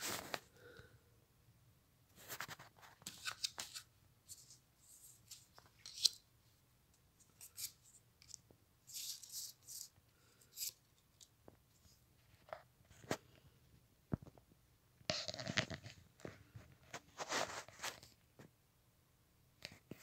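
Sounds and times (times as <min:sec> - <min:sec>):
cards rustling and sliding on table: 0:02.2 - 0:06.2.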